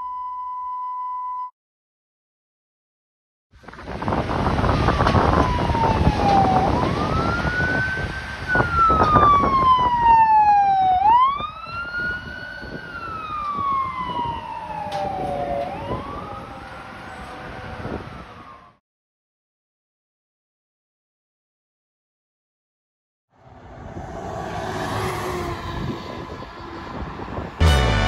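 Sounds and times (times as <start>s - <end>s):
passing vehicle noise: 3.6s - 18.8s, 23.4s - 28.0s
siren wailing: 4.3s - 18.8s, 23.8s - 27.9s.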